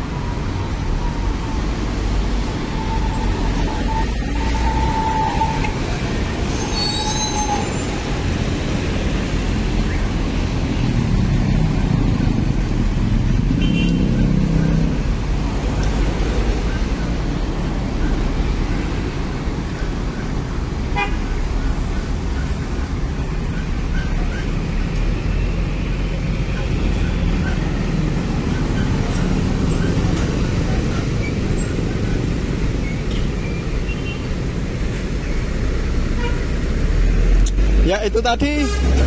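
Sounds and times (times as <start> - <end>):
bus diesel engine: 0.0 - 39.0
street traffic: 0.0 - 39.0.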